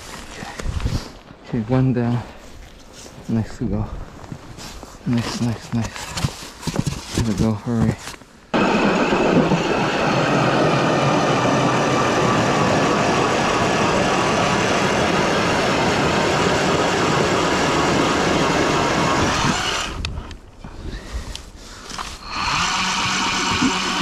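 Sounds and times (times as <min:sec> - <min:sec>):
electric ice auger drilling: 0:08.6 - 0:20.1, 0:21.9 - 0:24.0.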